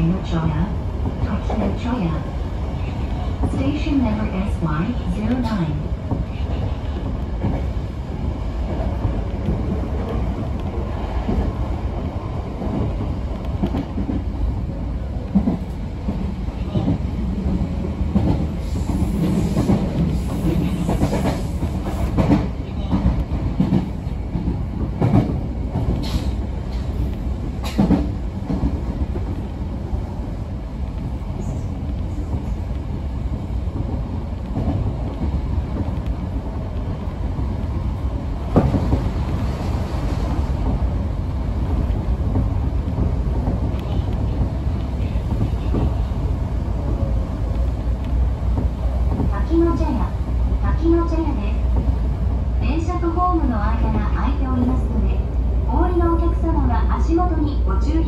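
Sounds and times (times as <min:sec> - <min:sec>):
rail joint clacks: 0:00.0 - 0:07.8, 0:15.1 - 0:29.9, 0:41.6 - 0:55.0
train wheels rumbling on rails: 0:00.0 - 0:58.0.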